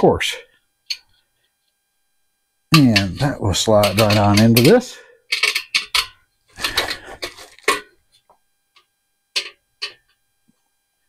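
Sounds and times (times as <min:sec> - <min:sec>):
metal grill parts clacking: 0:02.8 - 0:07.9, 0:09.4 - 0:10.0.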